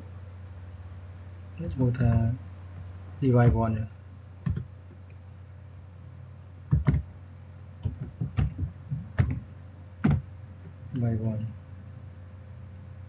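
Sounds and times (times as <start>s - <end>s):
keyboard key clicks: 6.7s - 7.0s.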